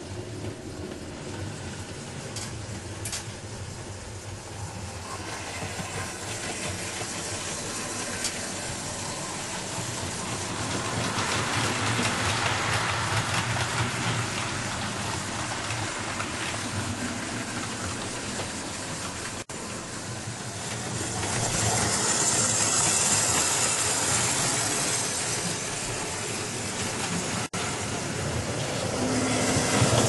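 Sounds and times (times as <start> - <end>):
model train wheels rumbling on rails: 0.0 - 30.0.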